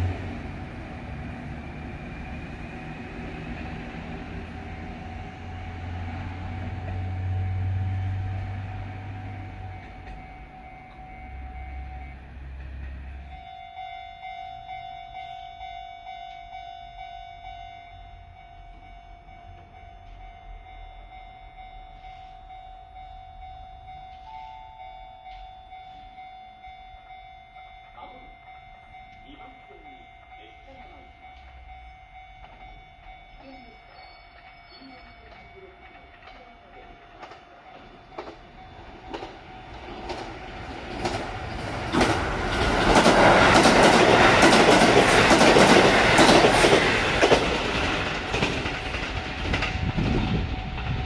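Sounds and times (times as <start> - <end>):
diesel train engine drone: 0.0 - 51.0
steady ringing tone: 3.9 - 12.4, 13.1 - 40.1.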